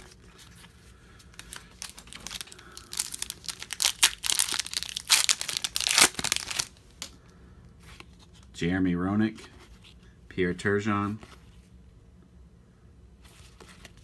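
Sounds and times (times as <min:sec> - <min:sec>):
foil wrapper crackling and tearing: 0:01.4 - 0:07.0.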